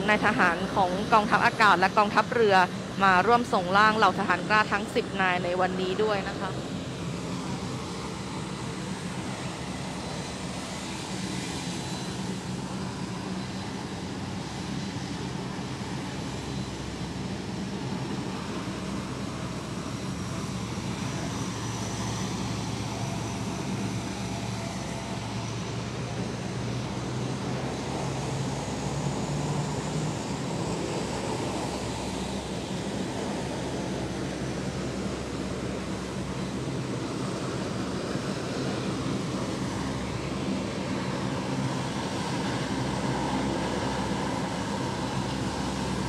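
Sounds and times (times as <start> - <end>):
turboprop engines droning: 0.0 - 46.0.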